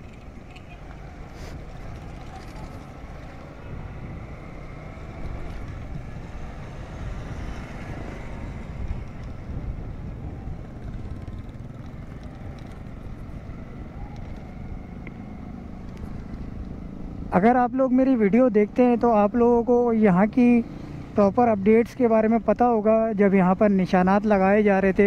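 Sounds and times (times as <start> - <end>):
motorcycle engine: 0.0 - 17.3
motorcycle traffic: 0.0 - 25.0
road noise: 0.0 - 25.0.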